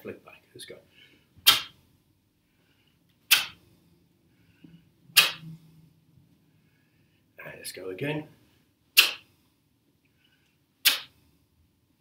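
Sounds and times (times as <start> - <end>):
uniform sleeves snapping: 3.3 - 3.6, 5.2 - 5.5, 9.0 - 9.2, 10.8 - 11.1.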